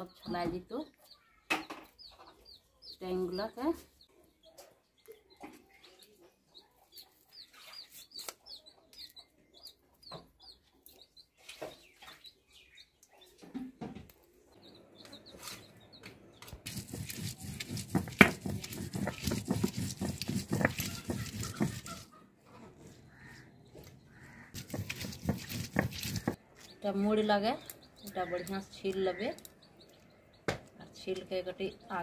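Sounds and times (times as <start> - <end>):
small bird chirping: 0.9 - 17.6, 22.8 - 30.8
stone roller grinding on stone slab: 16.7 - 22.1, 24.6 - 26.4.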